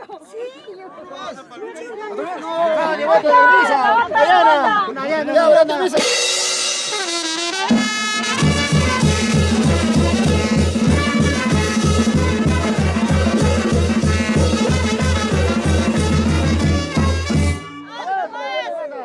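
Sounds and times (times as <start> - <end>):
brass band playing dance tune: 6.0 - 18.2.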